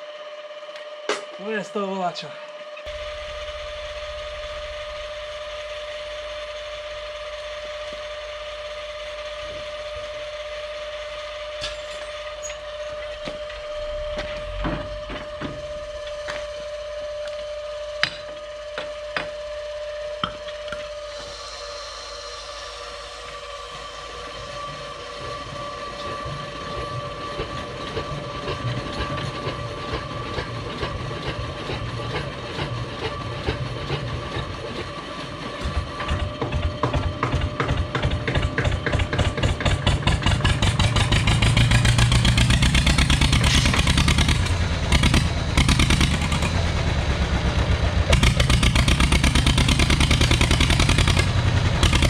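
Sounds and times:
electric motor whine: 0.0 - 30.8
diesel engine cranking and firing: 2.9 - 8.4, 11.2 - 17.1, 26.1 - 52.0.

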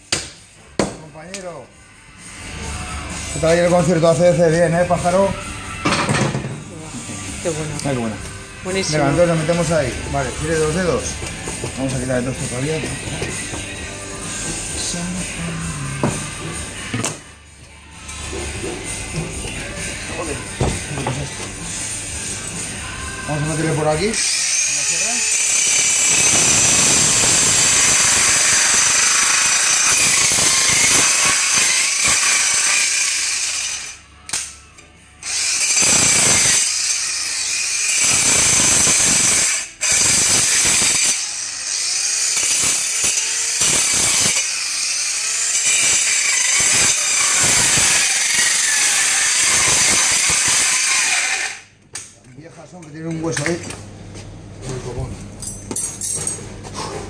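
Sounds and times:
bone saw high-pitched whine: 22.8 - 34.1.

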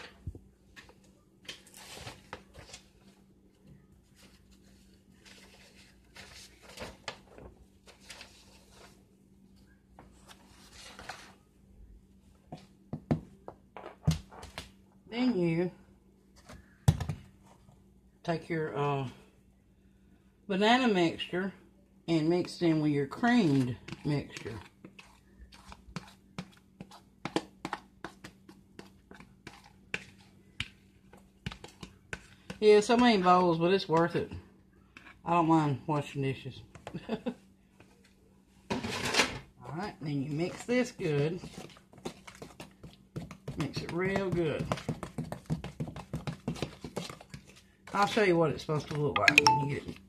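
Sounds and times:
fork scraping plastic bowls: 23.3 - 28.2.

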